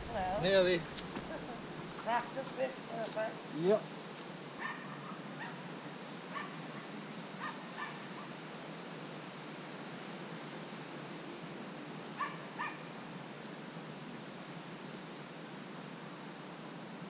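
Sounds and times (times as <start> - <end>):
steady outdoor hiss: 0.0 - 17.0
distant animal calls: 4.6 - 5.7, 6.3 - 8.4, 12.1 - 13.0.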